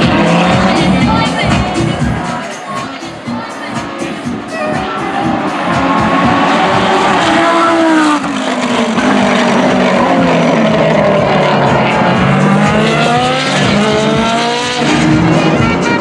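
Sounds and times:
racing car engine revving: 0.0s - 2.5s, 3.9s - 16.0s.

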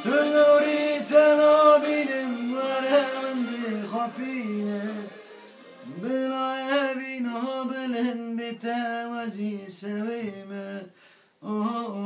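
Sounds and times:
man singing solo: 0.0s - 12.0s.

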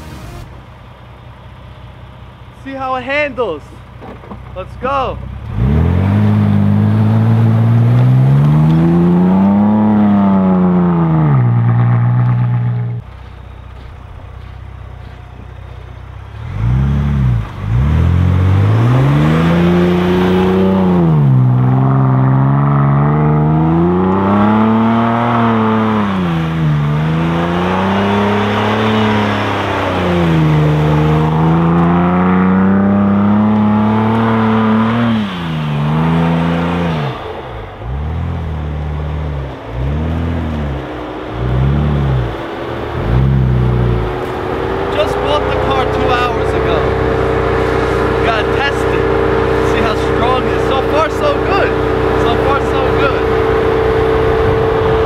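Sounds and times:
truck engine revving: 2.6s - 55.0s.

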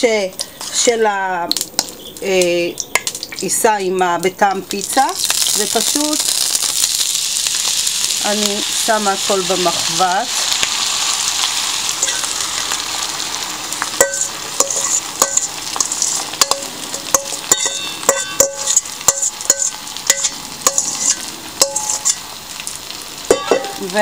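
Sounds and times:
batter sizzling in hot oil: 4.7s - 24.0s
metal utensil clinking on bowl: 14.0s - 22.2s, 23.3s - 23.8s.

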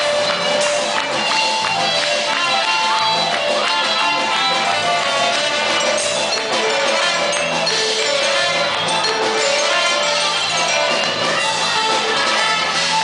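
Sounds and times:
dance band melody instruments: 0.0s - 13.0s
regular drum beat: 0.0s - 13.0s.

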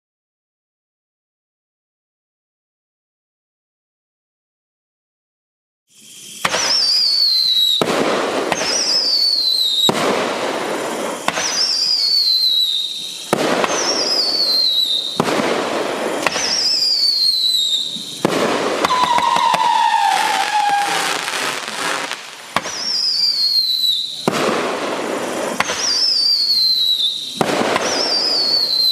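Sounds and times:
fireworks shots: 6.0s - 28.9s
high falling whistle: 6.1s - 7.8s, 18.8s - 24.2s, 25.9s - 28.9s
lower falling whistle: 6.5s - 7.8s, 11.5s - 15.2s, 16.4s - 18.2s, 18.8s - 24.2s, 25.9s - 28.9s.

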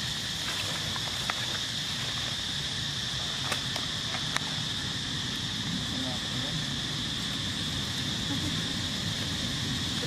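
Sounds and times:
dry leaves crackling: 0.0s - 5.6s
insect chorus drone: 0.0s - 10.0s.

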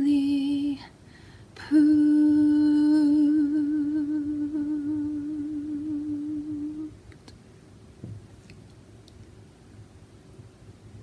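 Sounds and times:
woman singing unaccompanied: 0.0s - 1.0s, 1.6s - 7.1s.

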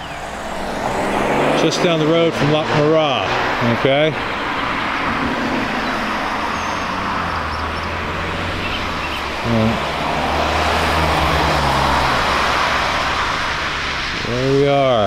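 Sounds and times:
cars passing by: 0.0s - 15.0s
tyre and road noise: 0.0s - 15.0s
low engine drone: 4.7s - 15.0s.

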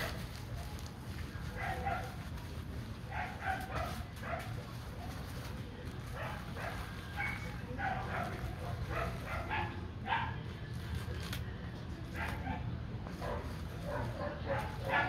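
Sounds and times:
dog barking: 1.6s - 2.2s, 3.1s - 4.6s, 6.1s - 10.4s, 12.2s - 15.0s.

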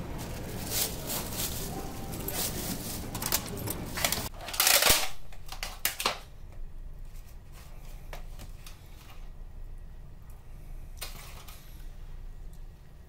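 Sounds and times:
plastic bag rustling: 0.0s - 5.8s.

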